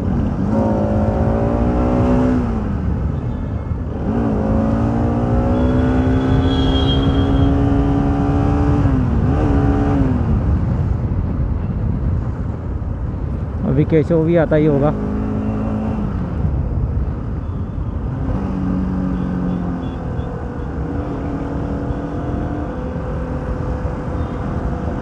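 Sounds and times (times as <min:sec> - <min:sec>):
motorcycle engine accelerating: 0:04.1 - 0:10.2
wind rumble on microphone: 0:06.2 - 0:15.0, 0:15.9 - 0:19.1.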